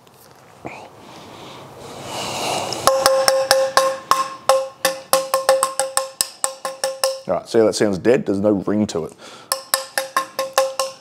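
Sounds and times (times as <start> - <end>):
shotgun barrels tapped with dead clinks: 2.9 - 7.3, 9.5 - 11.0.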